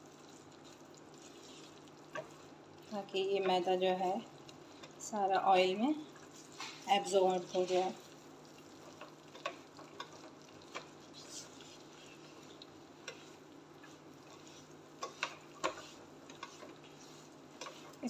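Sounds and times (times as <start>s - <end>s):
faint sizzle: 0.0s - 18.0s
spatula scraping frying pan: 0.7s - 2.5s, 8.8s - 18.0s.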